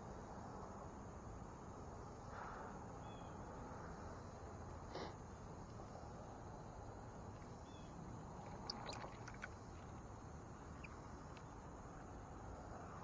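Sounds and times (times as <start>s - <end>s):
outdoor background noise: 0.0s - 13.0s
faint high chirps: 7.6s - 9.8s.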